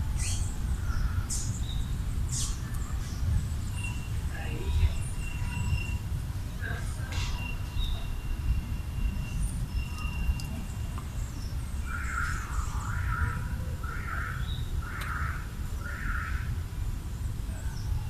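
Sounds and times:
faint high chirps: 0:03.7 - 0:11.2.

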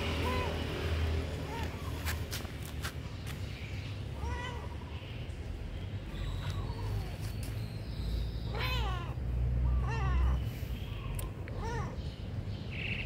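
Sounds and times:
cat meowing: 0:04.2 - 0:04.9, 0:08.5 - 0:10.4.

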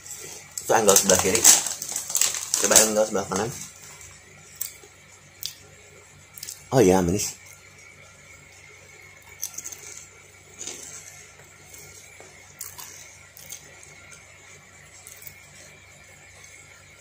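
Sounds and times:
potato chip crunching: 0:00.5 - 0:04.0, 0:06.4 - 0:06.7, 0:09.2 - 0:14.3, 0:14.9 - 0:15.6
soft chewing: 0:09.2 - 0:14.3.

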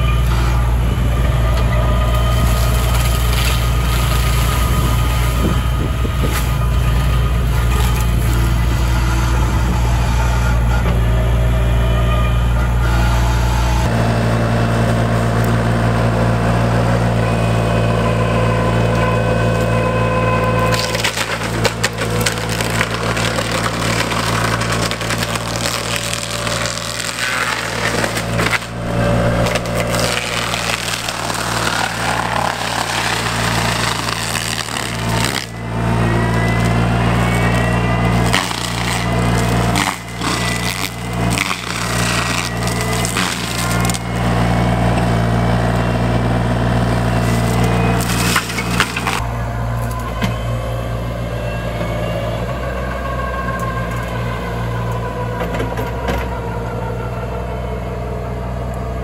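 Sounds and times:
wood crackling and splintering: 0:00.0 - 0:10.4, 0:19.4 - 0:50.0
diesel engine running: 0:00.0 - 0:59.0
mulcher head whine: 0:00.0 - 0:59.0.

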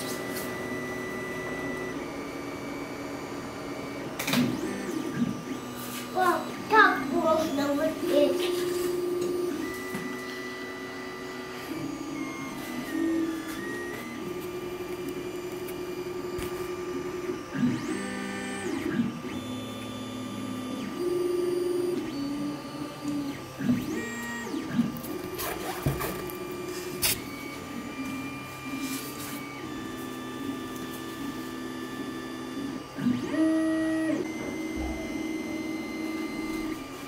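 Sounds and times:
steady hum: 0:00.0 - 0:32.8, 0:33.7 - 0:37.0
printer stepper motors whining: 0:00.0 - 0:37.0.

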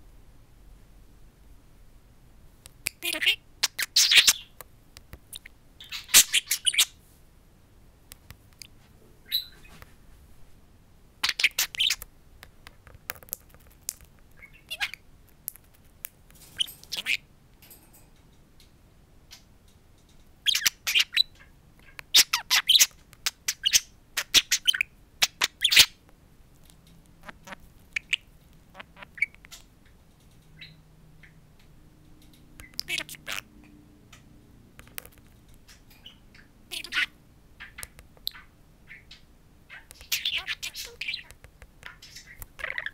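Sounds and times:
budgerigar chattering and squawking: 0:02.9 - 0:04.6, 0:05.3 - 0:07.0, 0:11.2 - 0:12.0, 0:14.4 - 0:15.0, 0:16.6 - 0:17.3, 0:20.5 - 0:26.0, 0:27.2 - 0:29.7, 0:32.6 - 0:33.5, 0:35.7 - 0:42.9.

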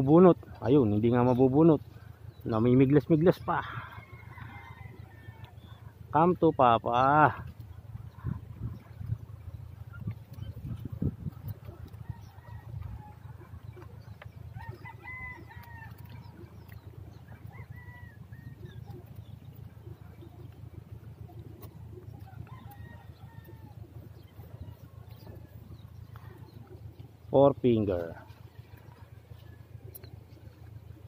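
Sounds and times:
distant chickens calling: 0:00.0 - 0:31.0
low steady rumble: 0:00.0 - 0:31.0
rooster crowing: 0:03.5 - 0:05.7, 0:14.6 - 0:16.1, 0:17.4 - 0:18.8, 0:22.2 - 0:23.8.

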